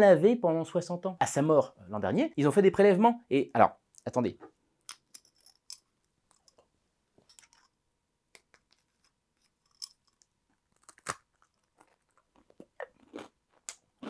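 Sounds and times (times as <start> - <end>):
small jar handling clicks: 7.2 - 7.7, 8.4 - 10.4
crunchy snack bitten: 10.7 - 14.0.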